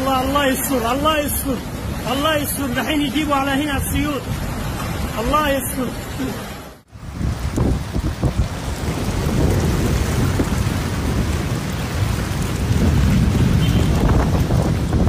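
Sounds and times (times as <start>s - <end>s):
heavy rain: 0.0s - 15.0s
deep thunder rumble: 7.0s - 15.0s.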